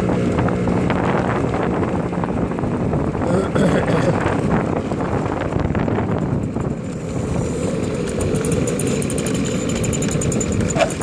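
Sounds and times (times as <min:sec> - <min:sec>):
moped engine running: 0:00.0 - 0:11.0.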